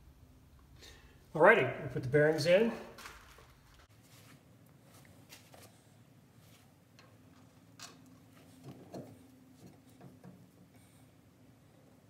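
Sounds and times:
metal parts clicking and tapping: 7.0 - 10.6.

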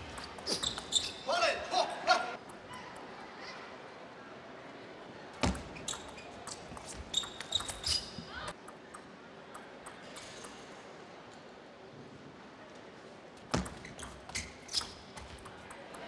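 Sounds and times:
short high squeaks: 0.2 - 1.4, 5.7 - 8.5, 13.7 - 15.1.

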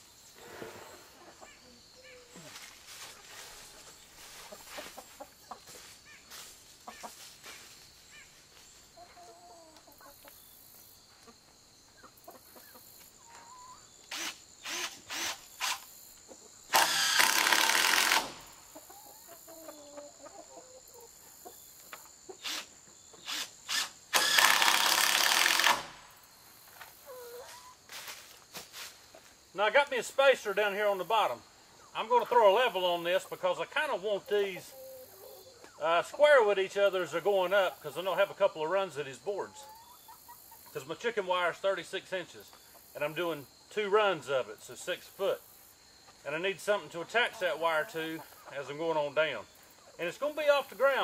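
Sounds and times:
chickens clucking: 0.4 - 14.1, 16.0 - 16.7, 18.3 - 23.3, 26.6 - 51.0
cordless drill driving screws: 14.1 - 15.9, 16.7 - 18.4, 22.4 - 25.9.

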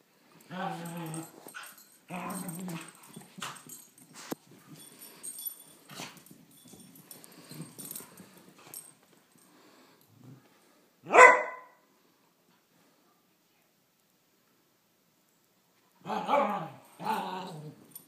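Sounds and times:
dog barking: 11.1 - 11.8.

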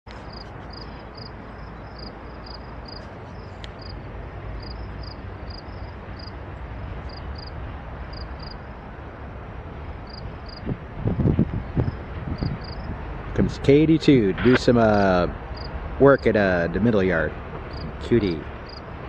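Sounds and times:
insects chirping: 0.3 - 4.0, 4.6 - 6.4, 7.0 - 8.7, 10.0 - 10.6, 11.8 - 12.9, 15.6 - 15.8, 17.7 - 17.9, 18.6 - 18.9.

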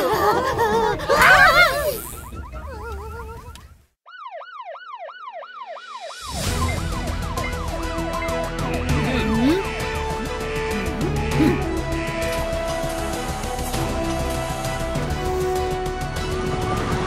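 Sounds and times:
cartoon siren wail: 1.1 - 8.4
upbeat background music: 6.2 - 17.0.

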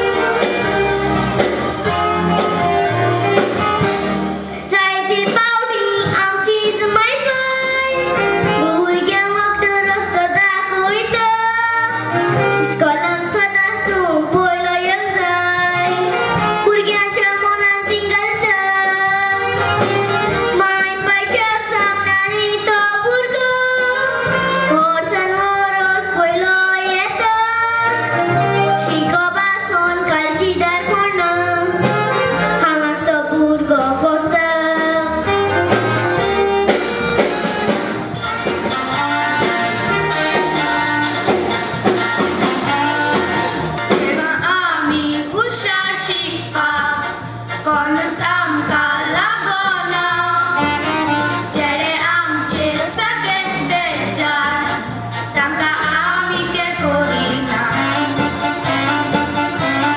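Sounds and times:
musical accompaniment: 0.0 - 59.9
drum beat: 35.2 - 44.7.

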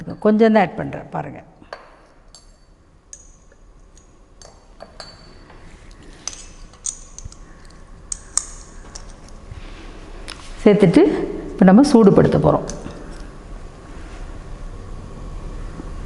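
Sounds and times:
glassware clinking: 1.7 - 5.6.

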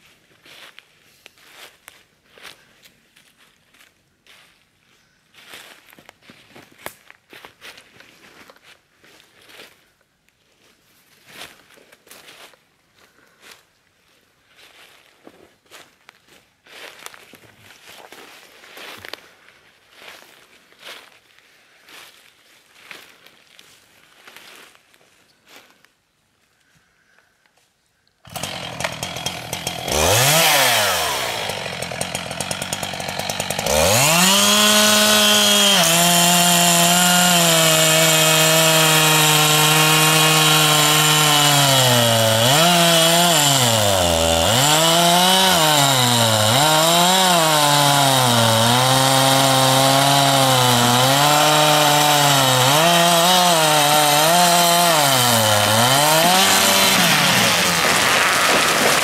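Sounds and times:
chainsaw cutting wood: 28.3 - 59.0.

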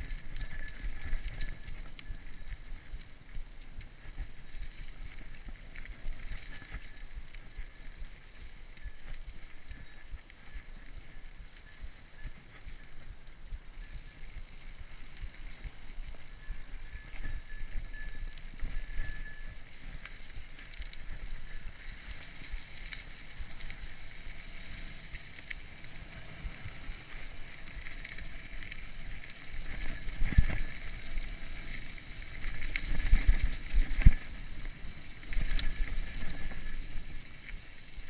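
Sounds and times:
bike tyres rolling over dirt: 0.0 - 38.0
bike rattling and thudding: 13.6 - 38.0.

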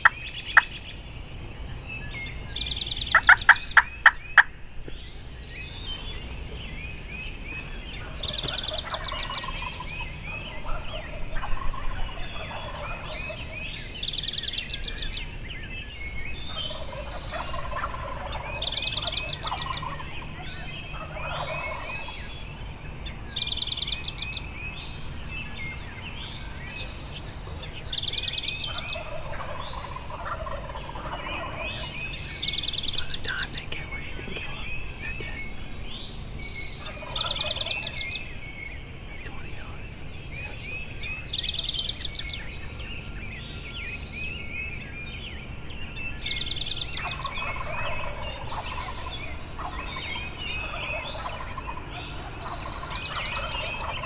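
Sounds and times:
turkeys gobbling: 2.9 - 5.0, 7.6 - 15.4, 16.4 - 22.4, 25.9 - 35.9, 36.7 - 45.4, 46.2 - 54.0.

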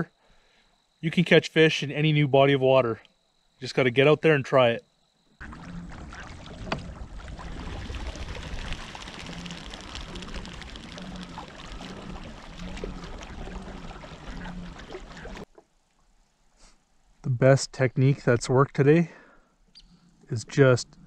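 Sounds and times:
water lapping against a hull: 5.4 - 15.7.

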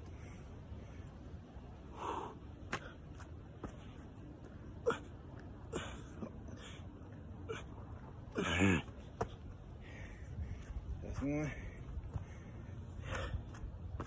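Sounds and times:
man breathing hard: 0.0 - 3.1, 9.6 - 14.0.

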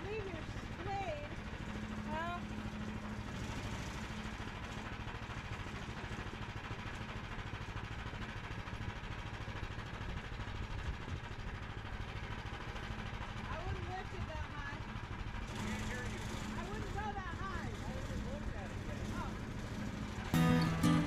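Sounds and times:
sawmill gas engine running: 0.0 - 21.0.

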